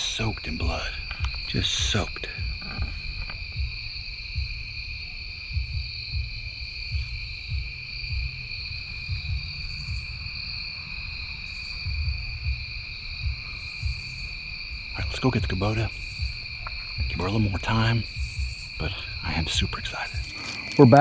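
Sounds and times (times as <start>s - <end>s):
insect chorus trilling: 0.0s - 21.0s
low rumbles and thumps: 0.0s - 21.0s.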